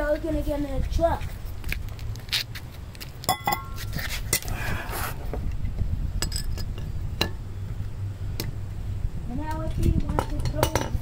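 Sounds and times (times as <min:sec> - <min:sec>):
steady low rumble: 0:00.0 - 0:11.0
scraping rustle: 0:00.8 - 0:05.4.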